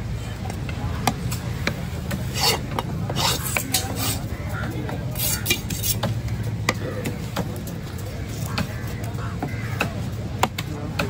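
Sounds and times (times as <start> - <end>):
knife scraping fish scales: 2.3 - 4.3, 5.2 - 6.1.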